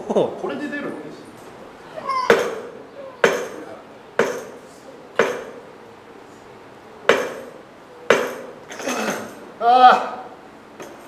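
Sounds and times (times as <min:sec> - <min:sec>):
barbell clanking on steel frame: 0:02.3 - 0:04.6, 0:05.2 - 0:05.7, 0:07.1 - 0:09.4, 0:10.8 - 0:11.0.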